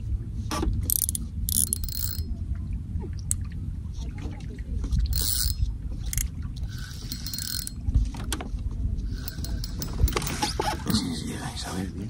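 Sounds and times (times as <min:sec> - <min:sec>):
fishing reel being cranked: 0:00.9 - 0:02.2, 0:05.1 - 0:07.8, 0:09.1 - 0:10.8
handling clicks: 0:00.9 - 0:02.2.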